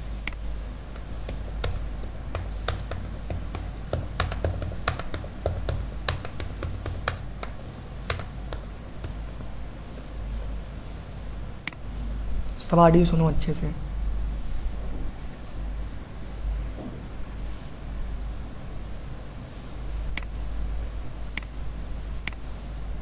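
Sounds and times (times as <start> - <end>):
low steady hum: 0.0 - 23.0
typing on computer keyboard: 0.3 - 9.4.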